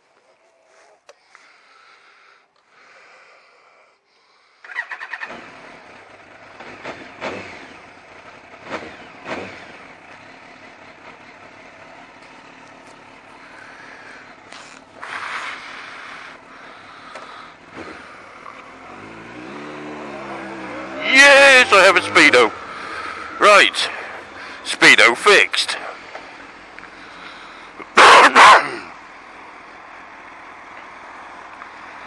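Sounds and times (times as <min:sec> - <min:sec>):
motorcycle engine starting and idling: 0:04.6 - 0:28.0.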